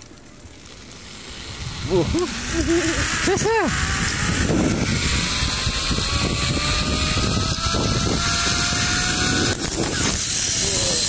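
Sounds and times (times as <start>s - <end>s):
wind buffeting microphone: 1.5s - 11.0s.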